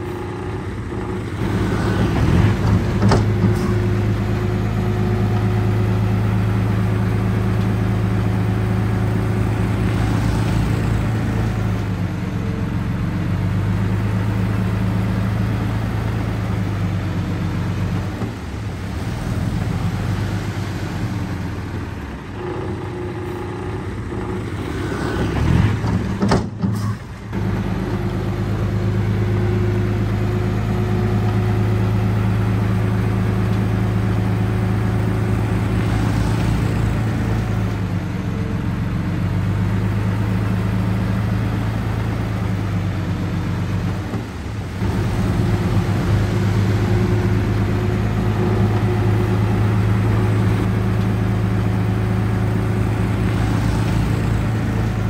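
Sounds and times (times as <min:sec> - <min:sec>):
heavy diesel engine running: 0:00.0 - 0:55.0.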